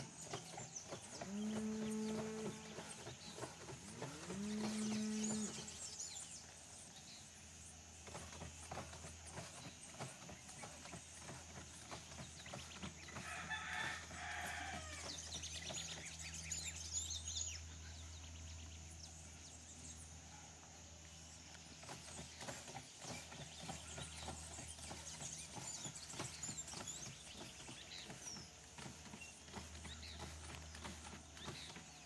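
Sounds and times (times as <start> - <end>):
small birds chirping: 0.0 - 32.0
cow mooing: 4.0 - 5.6
rooster crowing: 13.2 - 15.2.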